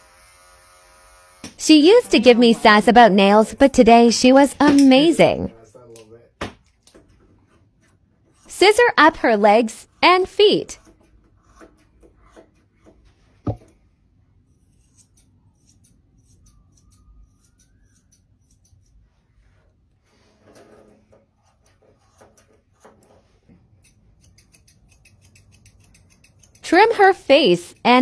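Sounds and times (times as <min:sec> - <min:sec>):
scissors snipping: 0:23.8 - 0:28.0.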